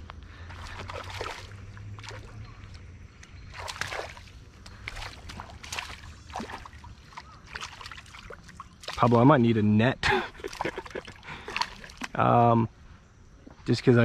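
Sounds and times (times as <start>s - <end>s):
fish splashing in water: 0.5s - 9.2s, 10.3s - 12.2s.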